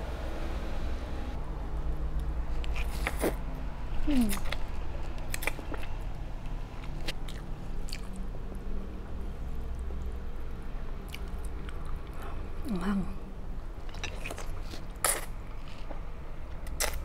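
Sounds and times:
steady low hum: 0.0 - 16.8
chewing: 4.1 - 4.6, 5.2 - 6.0, 6.8 - 8.3, 13.8 - 16.0.

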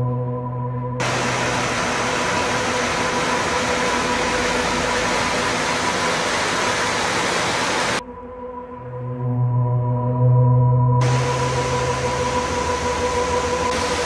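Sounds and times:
faint ambient music: 0.0 - 6.6, 8.0 - 14.0
stream water rushing over rocks: 1.0 - 8.0, 11.0 - 14.0.

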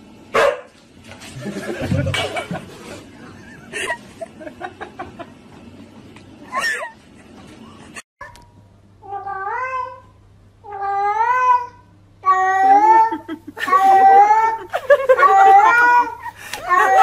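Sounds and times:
cat meowing: 10.6 - 14.6, 15.3 - 17.0.

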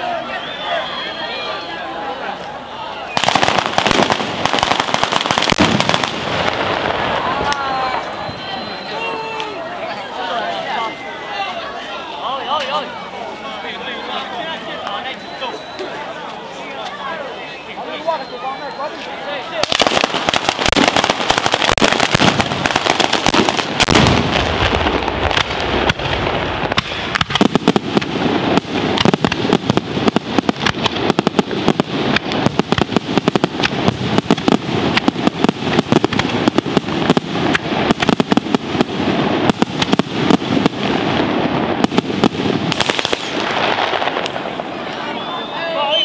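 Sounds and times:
firecrackers banging and crackling: 3.1 - 9.6, 18.9 - 46.0.

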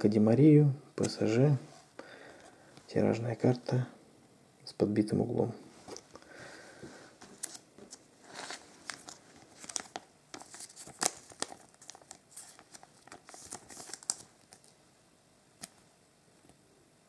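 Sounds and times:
plastic card sleeve crinkling: 7.2 - 14.8.

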